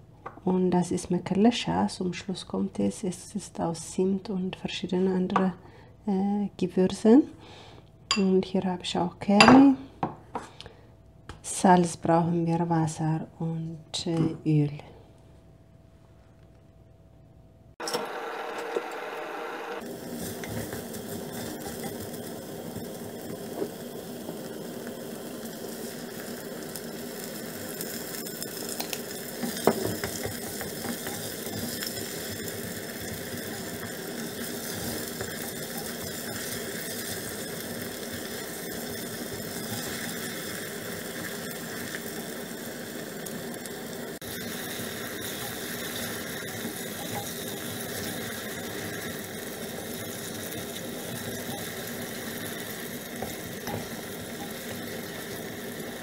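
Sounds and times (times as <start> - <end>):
onion sizzling in pot: 17.7 - 56.0.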